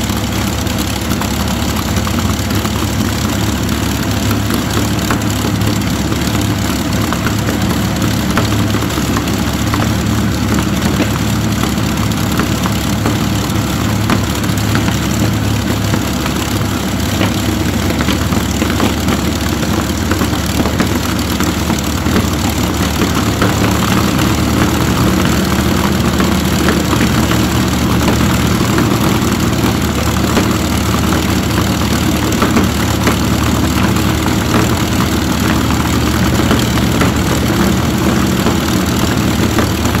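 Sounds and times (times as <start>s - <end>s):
aero engine running steadily: 0.0s - 40.0s.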